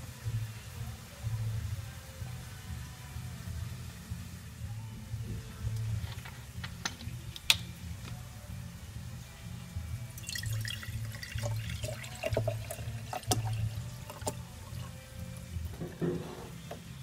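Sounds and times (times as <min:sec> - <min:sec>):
drink pouring into a glass: 0:10.2 - 0:15.0.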